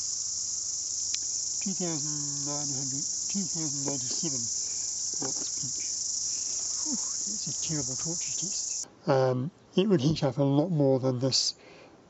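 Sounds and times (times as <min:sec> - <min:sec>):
shrill insect chorus: 0:00.0 - 0:08.8
man's low voice: 0:01.7 - 0:04.5, 0:06.8 - 0:11.4.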